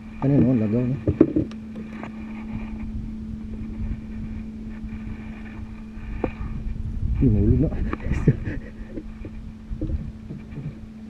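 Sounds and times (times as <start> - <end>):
boat engine droning: 0.0 - 11.0
water noise: 0.0 - 11.0
wind: 0.0 - 11.0.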